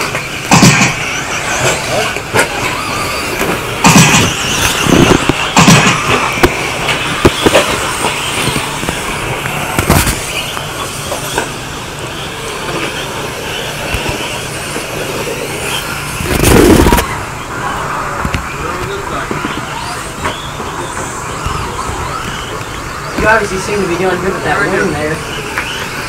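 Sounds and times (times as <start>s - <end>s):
toy truck motors whining: 0.0s - 26.0s
sharp knocks: 0.5s - 1.1s, 3.4s - 9.0s.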